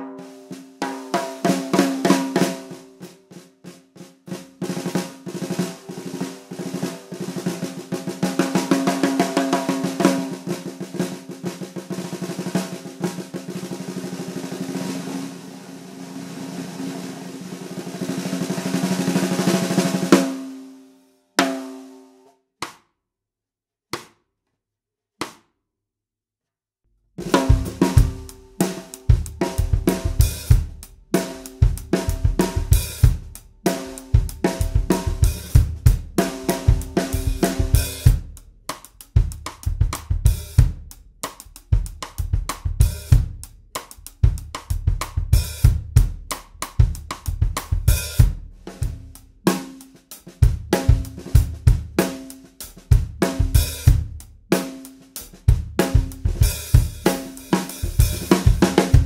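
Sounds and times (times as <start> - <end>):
snare drum hits: 22.6 - 22.8, 24.0 - 24.2, 25.2 - 25.5.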